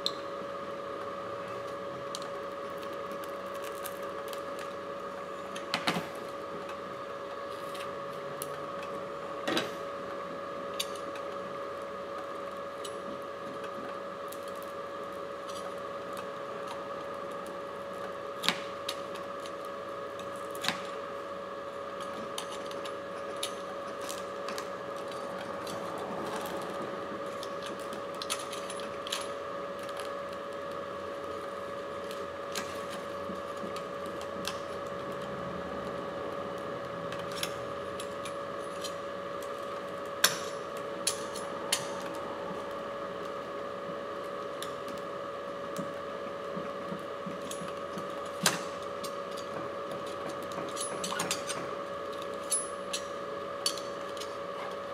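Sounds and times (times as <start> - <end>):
steady background hum: 0.0 - 54.9.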